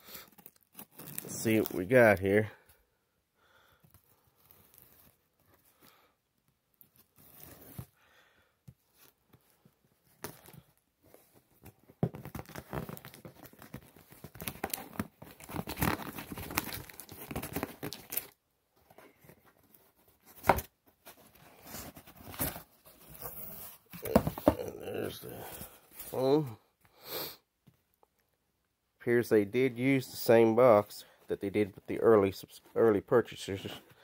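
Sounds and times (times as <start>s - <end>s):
packaging tearing and crinkling: 0.3s - 1.8s, 12.2s - 18.4s.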